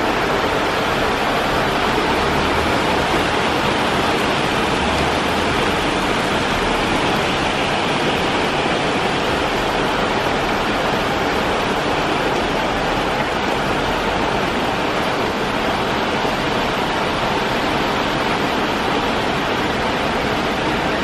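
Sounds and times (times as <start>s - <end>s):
heavy rain on roofs and street: 0.0s - 21.0s.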